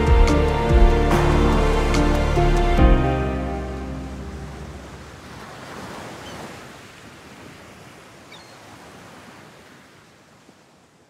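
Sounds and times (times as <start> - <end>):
sea waves washing in: 0.0 - 11.0.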